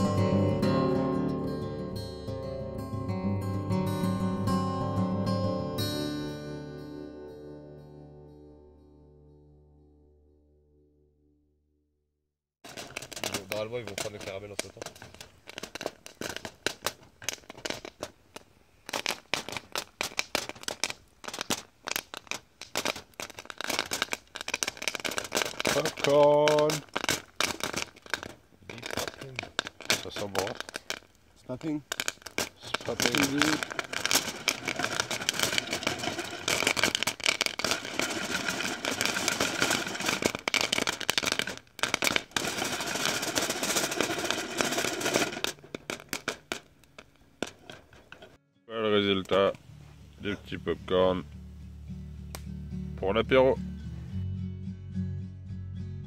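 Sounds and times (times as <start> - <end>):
popcorn popping: 12.6 - 48.4.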